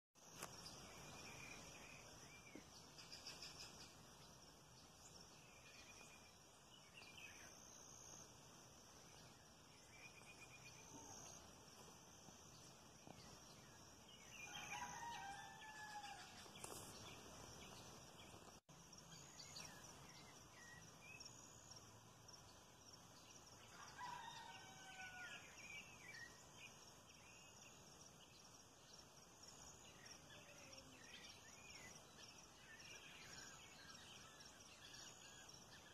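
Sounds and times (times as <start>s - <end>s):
steady high-pitched hiss: 0.2s - 35.9s
faint rooster crowing: 14.2s - 16.8s, 23.6s - 25.6s.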